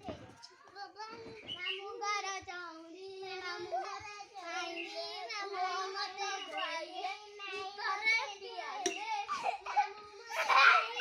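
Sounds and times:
child singing wavering chant: 1.2 - 8.6.

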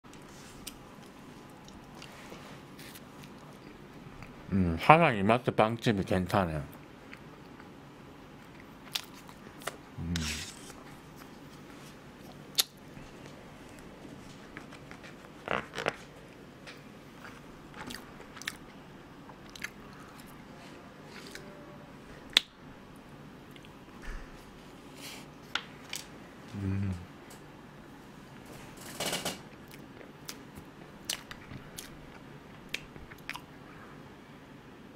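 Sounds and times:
chewing with wet mouth clicks: 12.2 - 12.8, 17.2 - 20.4, 31.0 - 33.5.

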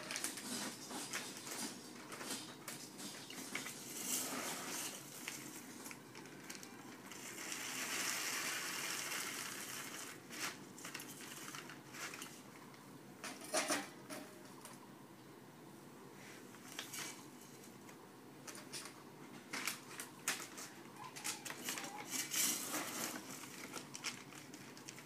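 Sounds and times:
plastic bag rustling and crinkling: 0.0 - 12.6, 18.5 - 25.0.

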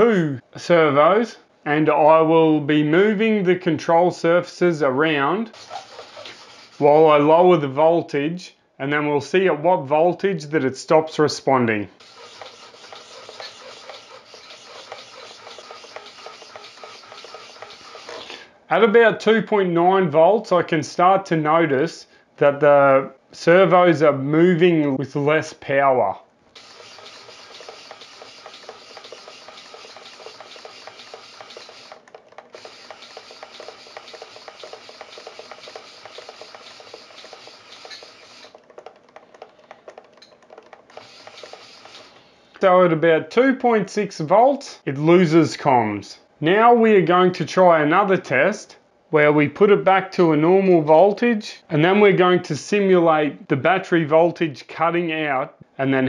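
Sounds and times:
servos buzzing and clicking: 5.6 - 6.9, 12.0 - 18.4, 26.5 - 42.3.

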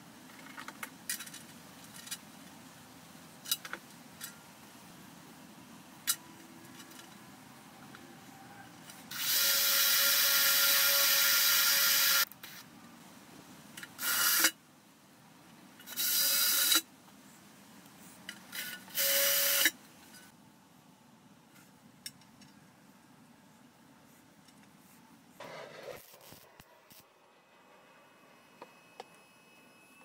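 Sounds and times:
cordless drill running: 9.1 - 12.2.

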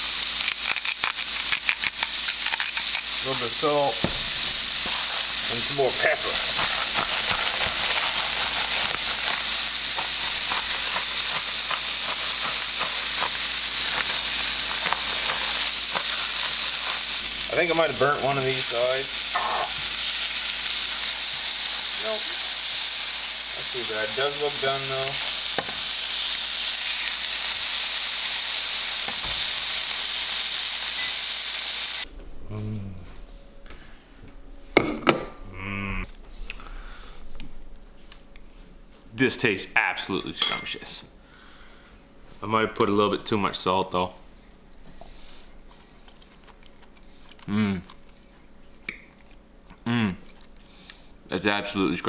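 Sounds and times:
fish frying in oil: 0.0 - 32.1.

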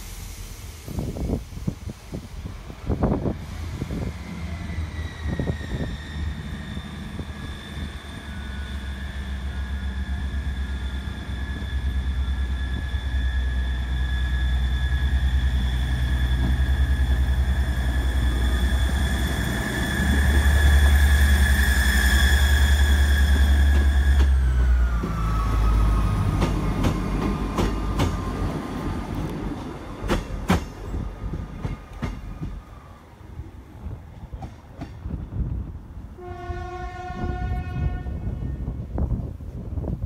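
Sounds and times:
high-pitched train whine: 0.0 - 34.1
diesel train engines droning: 0.0 - 40.0.

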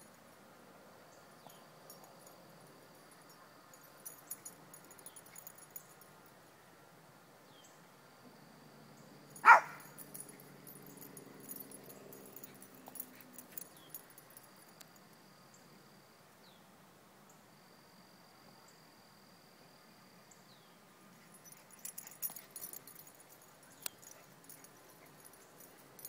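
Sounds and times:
small dog barking: 9.4 - 10.0.

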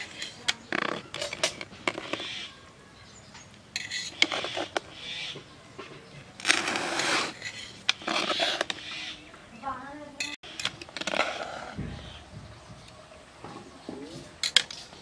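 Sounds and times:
metal ladle scraping a pot: 3.8 - 5.4, 6.4 - 9.1.

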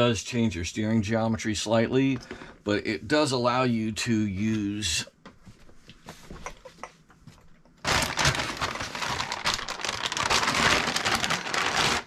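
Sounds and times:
plastic packaging crinkling: 7.8 - 12.0.

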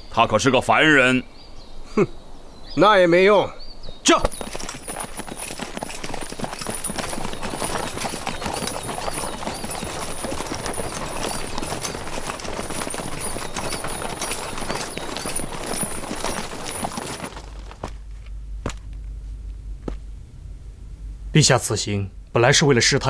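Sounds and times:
horse hooves clip-clopping: 4.1 - 19.1.

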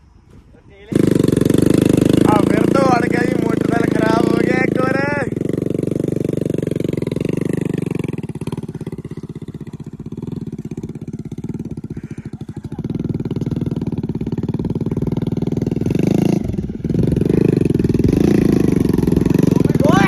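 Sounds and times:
motorcycle engine at low revs: 0.0 - 20.0.

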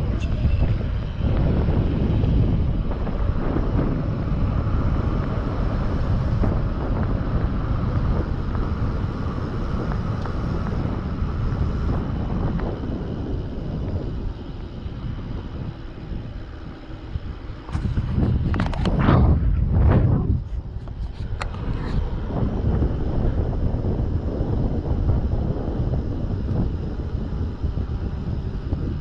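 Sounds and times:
bike tyres rolling on asphalt: 0.0 - 29.0
wind buffeting microphone: 0.0 - 29.0.

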